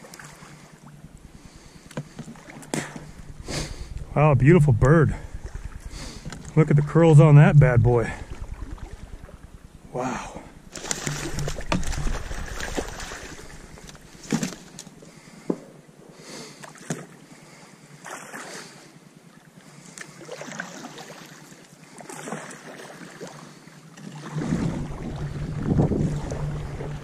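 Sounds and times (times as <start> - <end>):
wind and water noise: 0.0 - 27.0
paddle splashing in water: 10.7 - 14.8.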